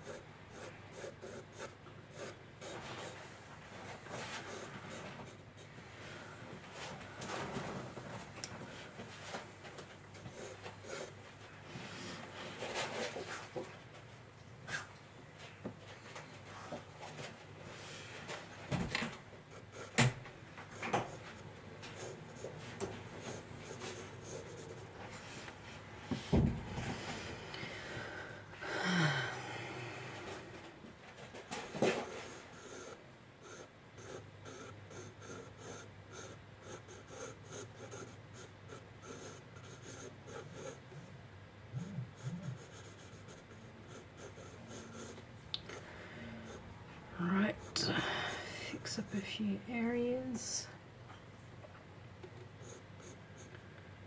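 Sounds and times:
pen drawing on paper: 0:00.0 - 0:03.2, 0:32.0 - 0:40.8, 0:41.8 - 0:45.2
breathy sound: 0:26.9 - 0:30.6, 0:47.9 - 0:48.8.

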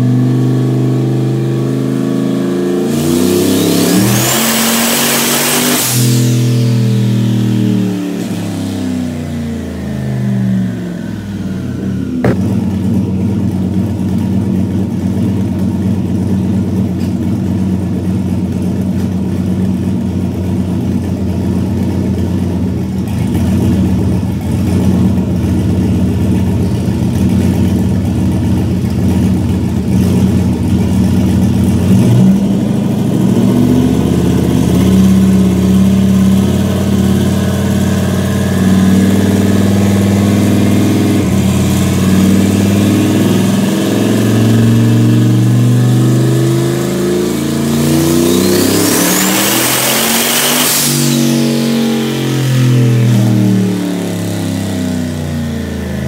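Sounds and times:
pickup truck engine revving: 0:00.0 - 0:15.4, 0:22.6 - 0:56.0
sharp engine pop: 0:12.2 - 0:12.8.

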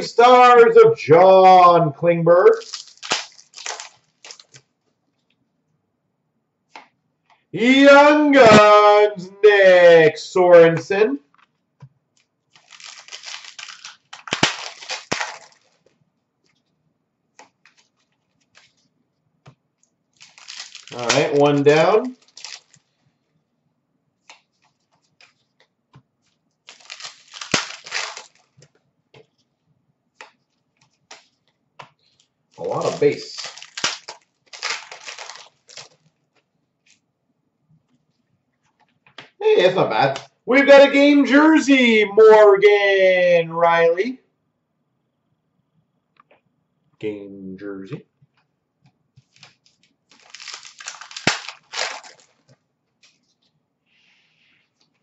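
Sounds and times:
cards being handled: 0:02.5 - 0:04.7, 0:12.5 - 0:16.6, 0:17.4 - 0:18.9, 0:20.2 - 0:22.9, 0:24.2 - 0:29.5, 0:30.2 - 0:37.0, 0:49.2 - 0:53.6
plastic wrapper crinkling and tearing: 0:02.5 - 0:04.7, 0:12.5 - 0:16.0, 0:17.4 - 0:18.8, 0:19.8 - 0:23.0, 0:26.6 - 0:28.7, 0:30.9 - 0:37.0, 0:49.2 - 0:53.6.

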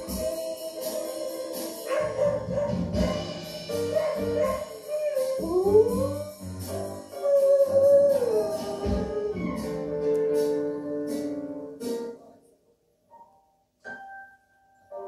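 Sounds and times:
dog howling: 0:00.0 - 0:06.3, 0:07.1 - 0:10.0
music: 0:00.0 - 0:15.0.

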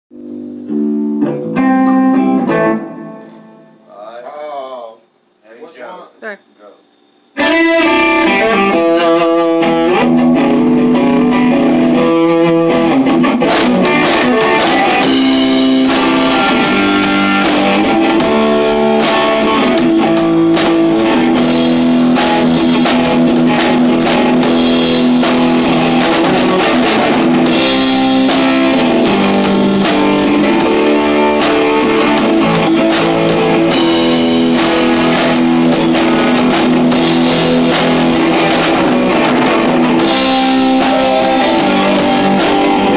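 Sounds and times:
rock band playing: 0:00.1 - 0:03.9, 0:07.4 - 0:42.9
electric guitar riff: 0:00.1 - 0:04.6, 0:07.3 - 0:42.9.

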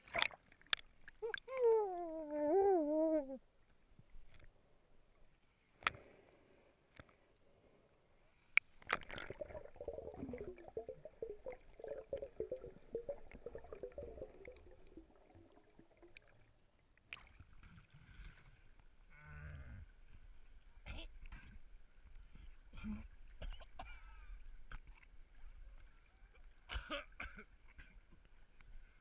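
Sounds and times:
water splashing: 0:08.7 - 0:18.6.

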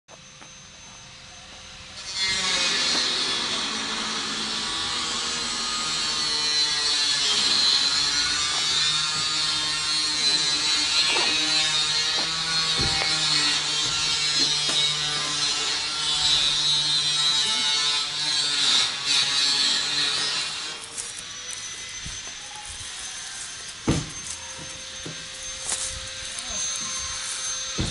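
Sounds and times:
small motor running: 0:00.2 - 0:27.9.

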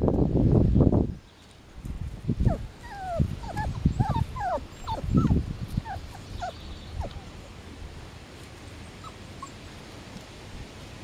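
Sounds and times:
puppies whimpering and yipping: 0:02.4 - 0:07.6, 0:08.9 - 0:09.7.

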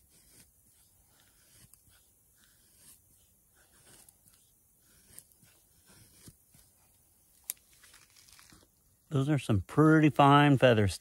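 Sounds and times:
knife scraping wood: 0:00.0 - 0:08.6.

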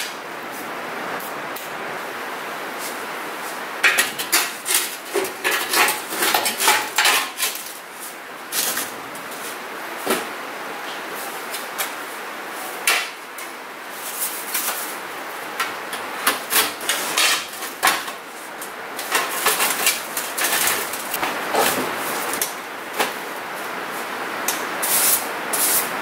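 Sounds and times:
metal stovepipe clanks and scrapes: 0:03.8 - 0:07.7, 0:15.6 - 0:18.2, 0:19.0 - 0:21.8.

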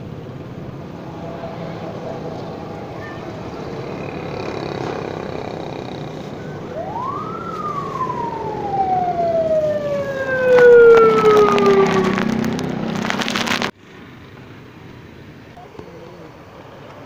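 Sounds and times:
street noise: 0:00.0 - 0:17.0
siren wailing: 0:00.4 - 0:13.4.

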